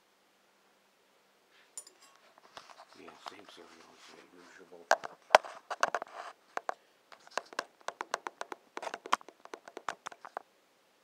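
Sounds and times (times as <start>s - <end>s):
handling clicks and scratches: 4.9s - 10.4s.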